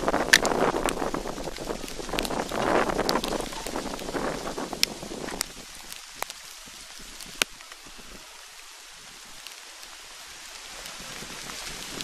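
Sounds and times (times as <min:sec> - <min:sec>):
light rain hissing: 0:00.0 - 0:12.0.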